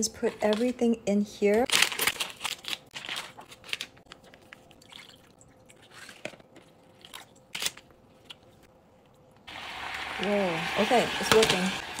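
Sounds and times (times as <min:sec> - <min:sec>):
foil pouches crinkling: 0:01.6 - 0:04.6.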